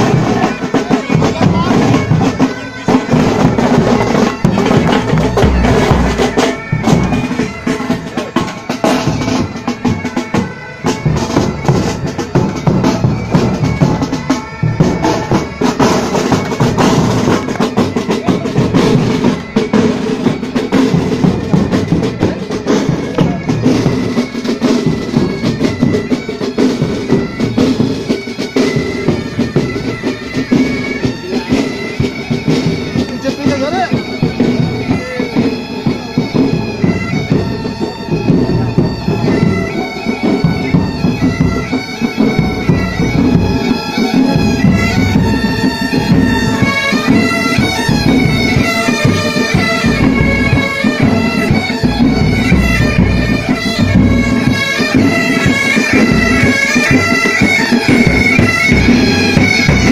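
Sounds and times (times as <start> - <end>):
fast snare drumming: 0.0 - 26.0
bagpipes: 0.0 - 59.9
drums: 0.0 - 59.9.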